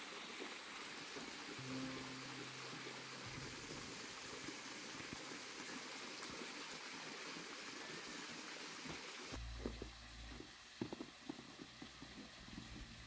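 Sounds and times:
soft rain-like hiss: 0.0 - 13.0
low hum: 1.6 - 5.6.

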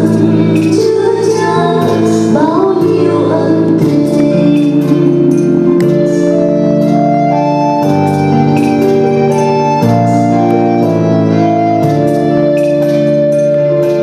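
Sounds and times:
person singing: 0.0 - 6.4
held organ chords: 5.3 - 14.0.

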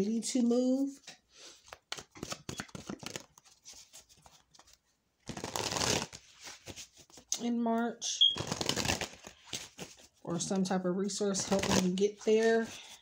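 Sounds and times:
cards shuffling: 1.6 - 7.3, 8.4 - 10.1, 11.3 - 13.0.

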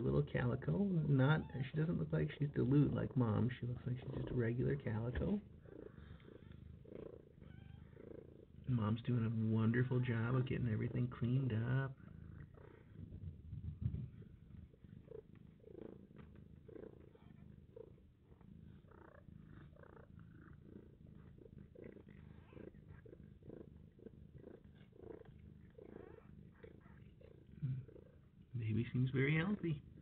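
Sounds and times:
cat purring: 0.0 - 30.0.

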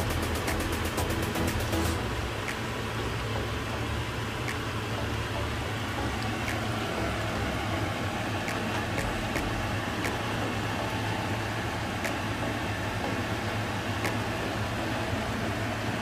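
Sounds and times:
fan hum and hiss: 0.0 - 16.0.

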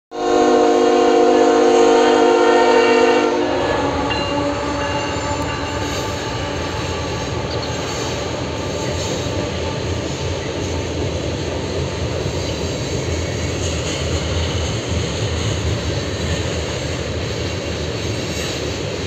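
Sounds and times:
locomotive air horn chord: 0.1 - 8.4
train rumbling: 0.1 - 19.0.

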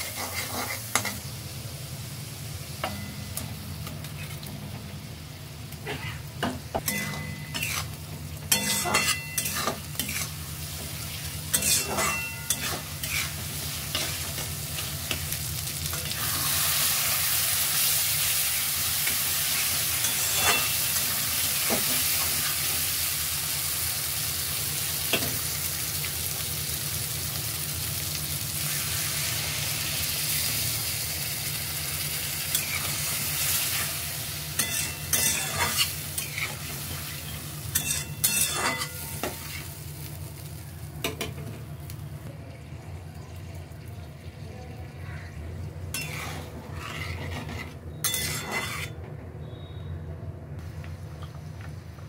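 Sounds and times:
spatula scraping a pan: 0.0 - 1.2, 6.9 - 14.9, 19.1 - 20.9, 34.6 - 39.8, 45.9 - 49.0
potatoes sizzling in a wok: 0.0 - 48.9.

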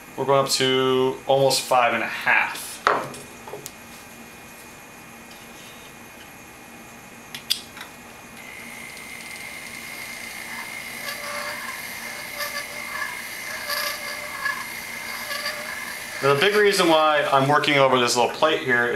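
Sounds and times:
rotary tool grinding wax: 8.4 - 17.7.

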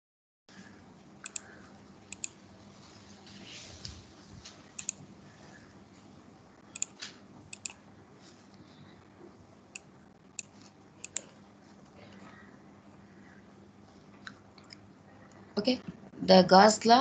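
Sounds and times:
faint steady hum: 0.5 - 17.0
computer mouse clicking: 1.2 - 1.5, 2.1 - 2.4, 4.8 - 5.0, 6.7 - 7.8, 9.8 - 11.3.

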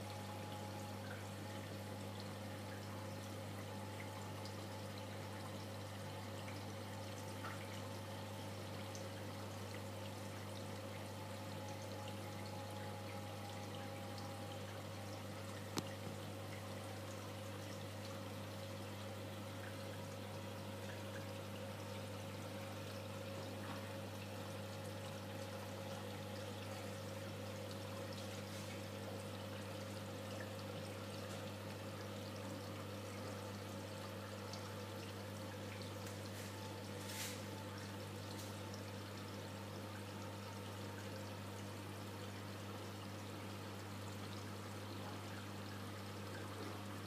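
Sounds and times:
low pump hum: 0.0 - 47.0
running water trickling: 0.0 - 47.0.

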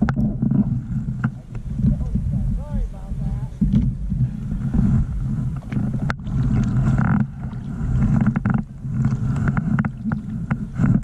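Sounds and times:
wind buffeting microphone: 0.0 - 11.0
gear clicks and knocks: 8.0 - 11.0.

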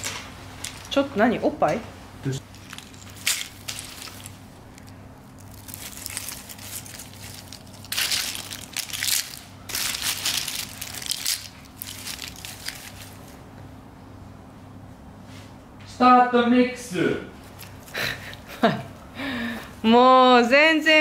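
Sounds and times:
walnut shells crunching and rattling: 0.0 - 1.0, 2.4 - 13.2.

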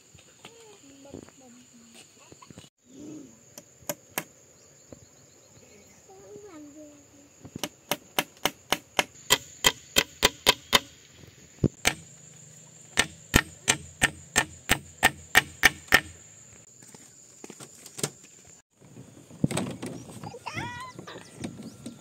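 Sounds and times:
rapid chopping strikes: 7.6 - 10.9, 11.7 - 12.1, 12.9 - 16.2.

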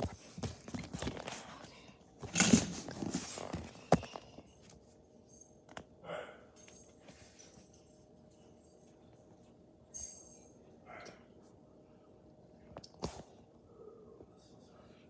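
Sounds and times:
rustling and handling noise: 0.0 - 5.4.

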